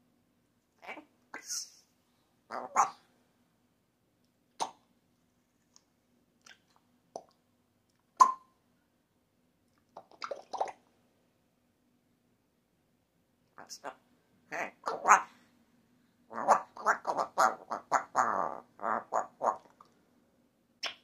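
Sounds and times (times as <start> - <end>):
parrot clicks and pops: 8.2 - 8.4.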